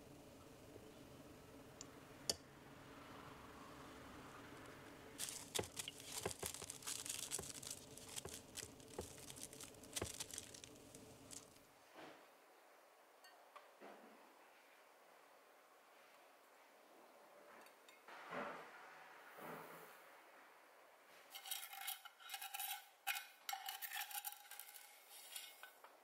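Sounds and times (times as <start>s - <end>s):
cling wrap crackling and tearing: 5.2s - 11.6s.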